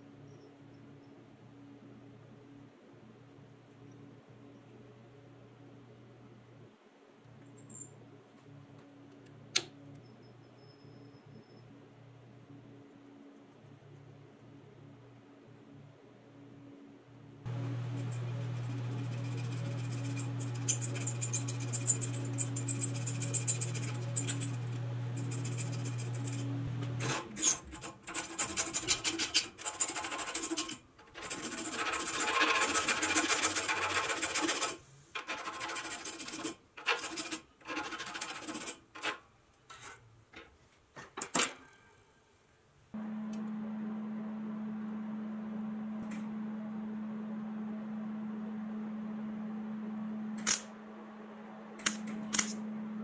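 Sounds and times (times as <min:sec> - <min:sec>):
electric hum with ticking: 0:17.4 - 0:27.2
rasping and rubbing strokes: 0:17.5 - 0:39.1.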